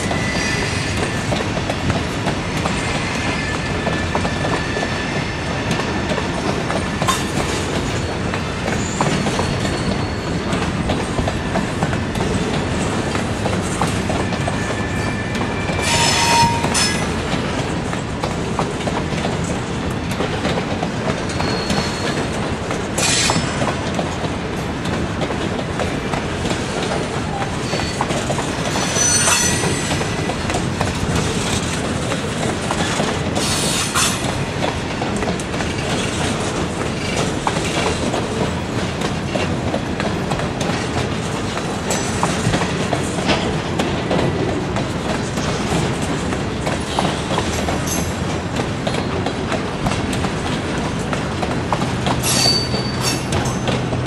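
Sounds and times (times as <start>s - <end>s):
train wheels rumbling on rails: 0.0s - 54.0s
wheel squeals: 8.0s - 10.6s, 14.0s - 17.1s, 21.3s - 22.4s, 27.3s - 30.3s, 52.2s - 53.6s.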